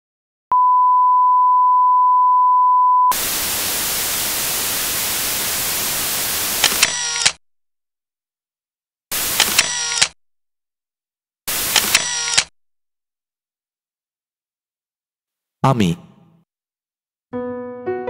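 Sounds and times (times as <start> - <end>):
test tone beep: 0.5 - 3.1
television static hiss: 3.2 - 6.8
sharp clicks: 6.6 - 7.4, 9.4 - 10.2, 11.7 - 12.5.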